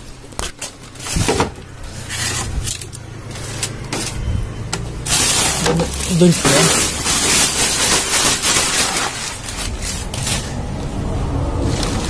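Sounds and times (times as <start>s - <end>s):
plastic crate knocking and clattering: 1.1s - 1.6s.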